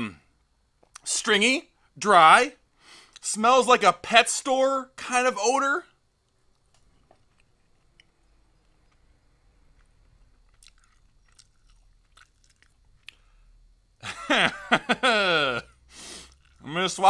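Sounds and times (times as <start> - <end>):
person chewing: 6.5 - 13.5, 15.9 - 16.7
wet mouth clicks: 10.4 - 13.3, 16.2 - 16.6.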